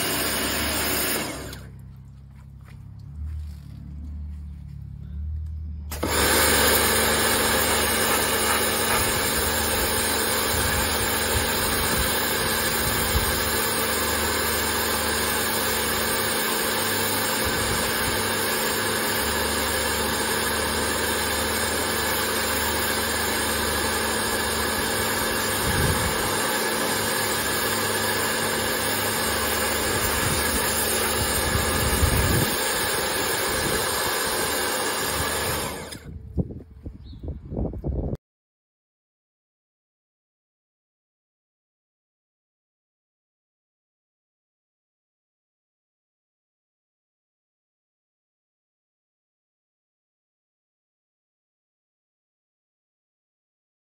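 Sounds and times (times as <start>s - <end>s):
pressure washer spraying water: 0.0s - 1.7s, 5.9s - 36.0s.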